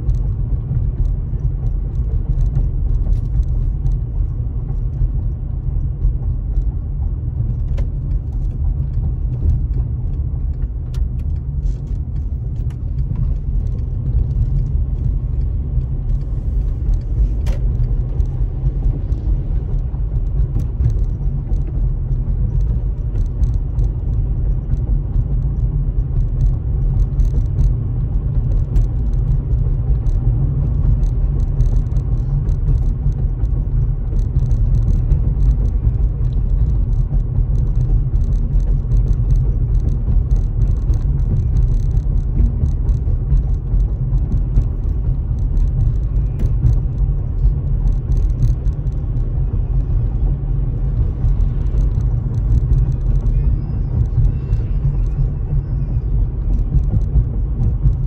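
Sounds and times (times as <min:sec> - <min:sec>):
car engine and road rumble: 0:00.0 - 0:58.0
faint ticks: 0:28.4 - 0:49.2.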